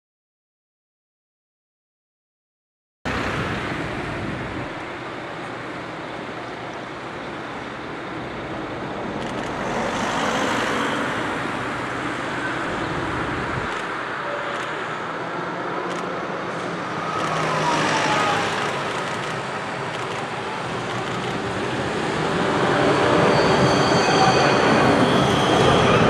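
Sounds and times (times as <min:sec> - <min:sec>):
cars passing: 0:03.1 - 0:26.0
tram on tracks: 0:03.1 - 0:26.0.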